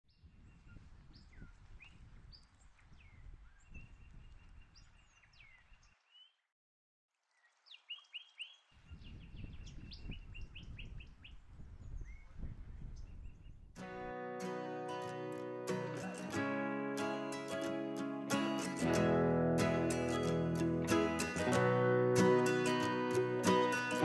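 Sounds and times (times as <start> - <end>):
birds calling and singing: 0.1 - 6.4, 7.4 - 13.6.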